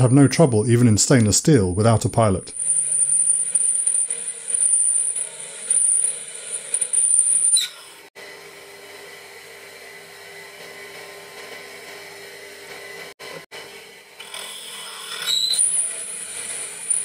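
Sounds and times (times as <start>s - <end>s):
drill whining into steel: 2.5s - 8.1s, 14.1s - 17.0s
mill spindle running: 2.5s - 8.1s.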